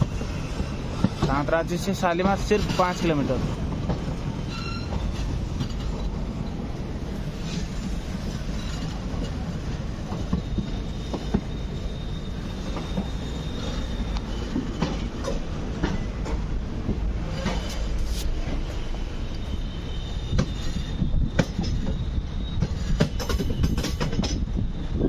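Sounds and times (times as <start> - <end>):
train rumbling over track: 0.0 - 25.0
thin wheel squeal: 4.5 - 5.2
wheels clicking over rail joints: 22.6 - 24.5.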